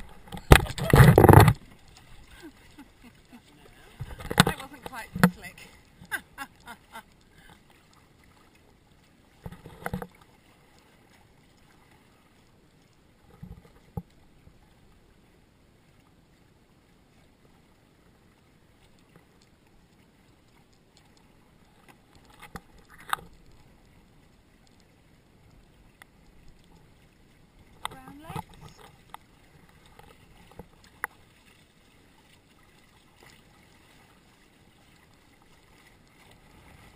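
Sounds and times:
knocks and bumps on boat: 0:00.0 - 0:01.7
water and wind rushing: 0:00.0 - 0:36.9.

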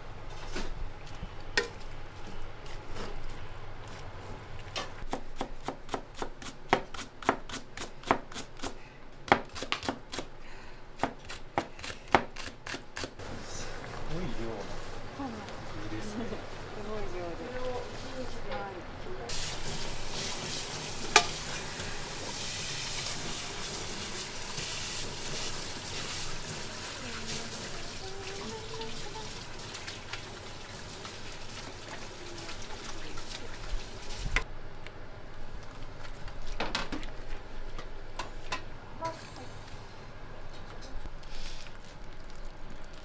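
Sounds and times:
pork and vegetables sizzling: 0:12.4 - 0:18.5, 0:19.2 - 0:34.4, 0:41.2 - 0:41.8.

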